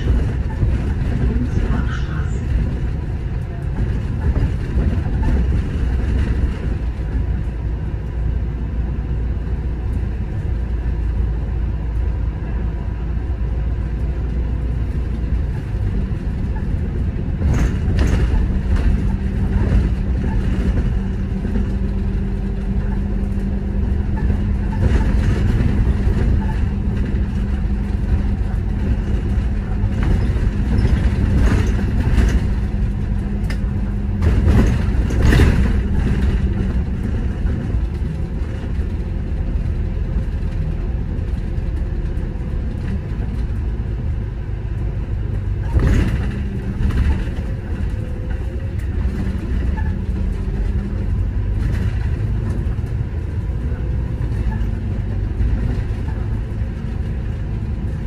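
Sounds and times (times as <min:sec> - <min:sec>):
bus engine and road rumble: 0:00.0 - 0:58.0
short knocks and rattles: 0:15.4 - 0:39.0.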